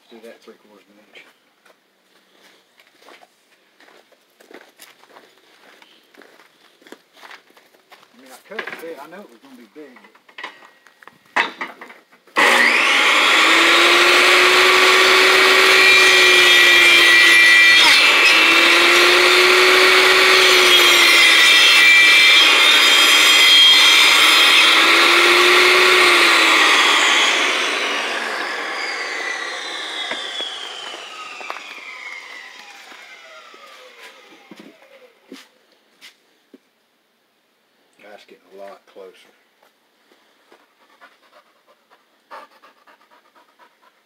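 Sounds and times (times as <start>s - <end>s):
saw blade winding down: 12.4s - 35.2s
table saw running: 12.4s - 35.2s.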